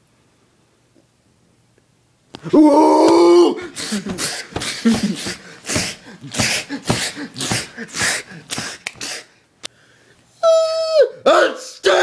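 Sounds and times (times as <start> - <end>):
person crying out: 2.4 - 4.2, 10.4 - 11.3
breathy grunts and mouth hit sounds: 3.6 - 9.2.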